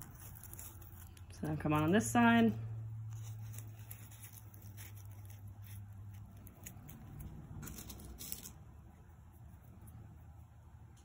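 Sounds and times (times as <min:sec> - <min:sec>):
fabric ribbon rustling: 0:00.0 - 0:01.9, 0:03.0 - 0:08.6.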